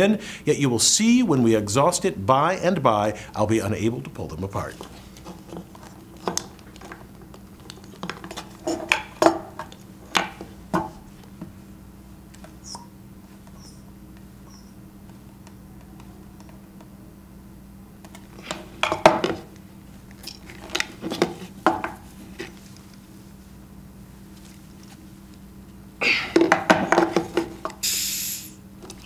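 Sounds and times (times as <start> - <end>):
faint steady hum: 0.0 - 29.0
sharp hiss of air: 27.8 - 28.6.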